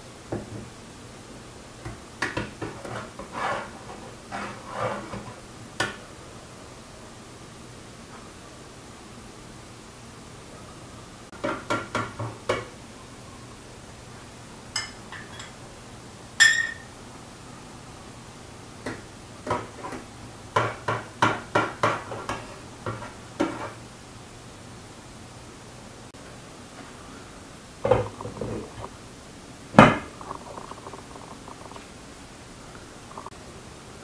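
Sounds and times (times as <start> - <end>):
metal spoon knocking on pot: 16.4 - 16.9.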